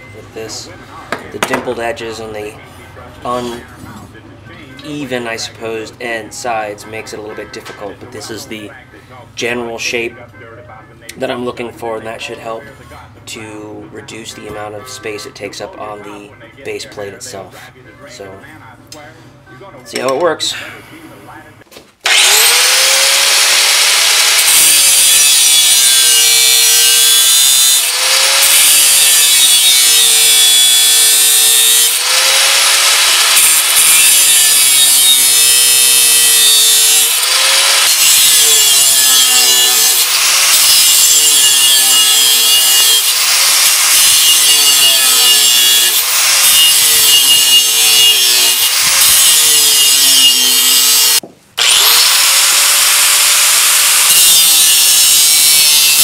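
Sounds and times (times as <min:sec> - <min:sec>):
angle grinder cutting steel: 0:22.0 - 0:56.0.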